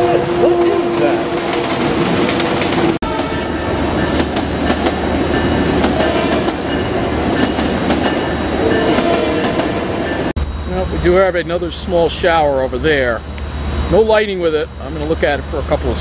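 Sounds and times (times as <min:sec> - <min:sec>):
train wheels clacking over rails: 0:00.7 - 0:03.3, 0:03.9 - 0:10.3.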